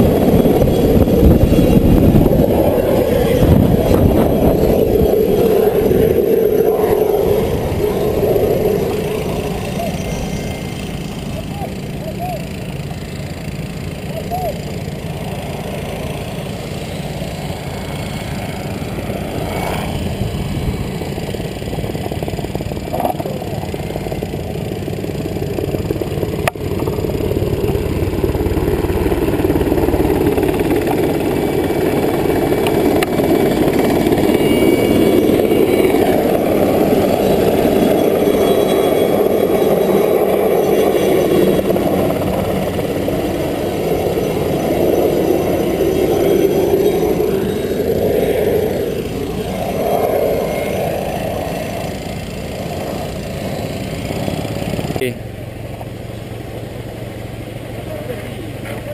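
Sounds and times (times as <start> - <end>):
engine running: 0.0 - 58.9.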